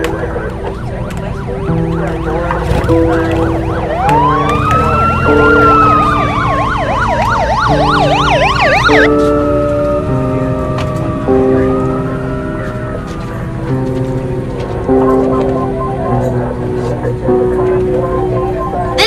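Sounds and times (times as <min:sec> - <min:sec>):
rapid yelping siren: 0:00.0 - 0:13.6, 0:14.4 - 0:19.0
slow background music: 0:00.0 - 0:19.0
wailing siren: 0:00.0 - 0:19.0.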